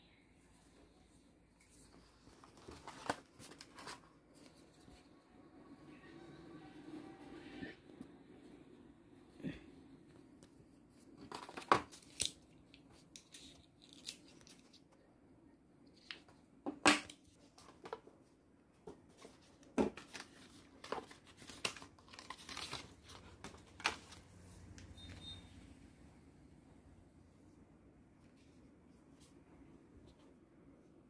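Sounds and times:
plastic packaging rustling and tearing: 20.0 - 24.3.

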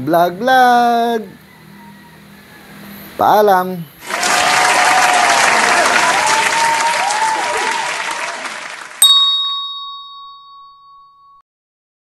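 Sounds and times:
applause: 4.0 - 9.0
hand bell ringing: 9.0 - 11.4.

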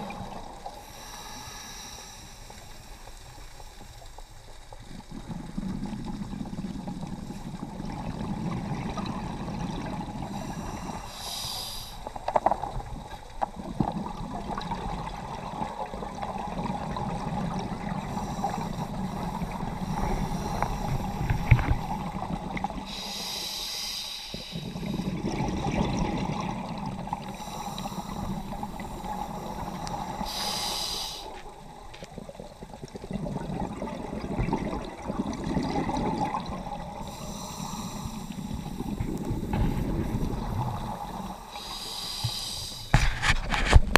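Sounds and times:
underwater water rumble: 0.0 - 43.9
diver breathing through regulator: 0.8 - 3.0, 10.3 - 12.2, 18.1 - 22.2, 22.8 - 25.2, 27.4 - 31.5, 37.0 - 43.7.

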